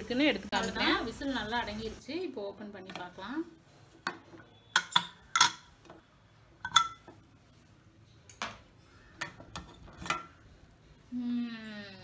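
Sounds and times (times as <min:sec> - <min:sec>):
metal lid clinking and knocking: 0:04.8 - 0:05.7, 0:06.6 - 0:07.1.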